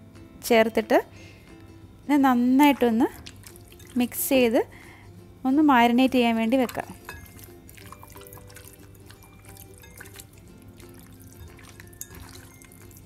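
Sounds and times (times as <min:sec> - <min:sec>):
soft background music: 0:00.0 - 0:13.0
hand squelching raw meat: 0:03.2 - 0:04.0, 0:06.6 - 0:13.0.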